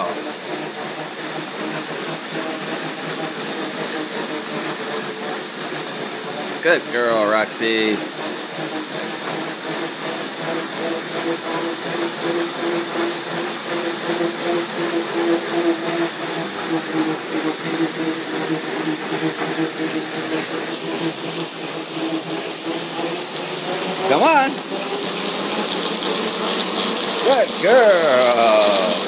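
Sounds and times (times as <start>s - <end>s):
treadmill whirring: 0.0s - 29.0s.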